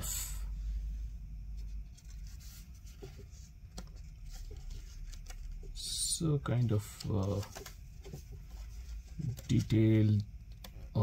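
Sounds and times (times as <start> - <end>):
low steady hum: 0.0 - 11.0
paper booklet pages rustling: 1.5 - 10.2.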